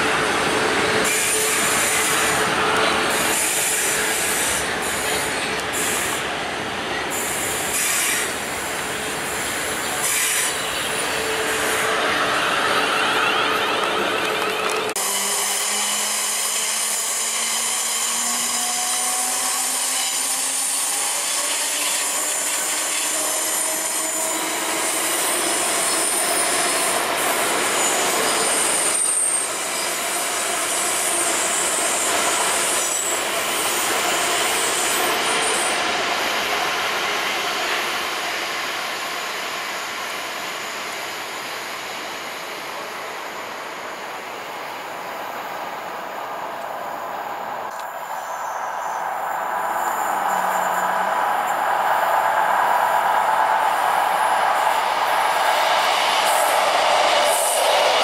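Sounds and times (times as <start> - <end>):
high wheel squeal: 9.7 - 35.9, 47.9 - 57.9.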